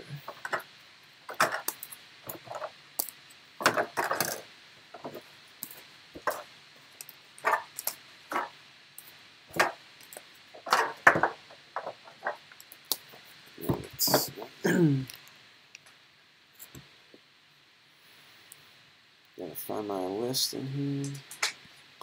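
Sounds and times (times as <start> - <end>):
card holders clicking and tapping: 1.3 - 4.4.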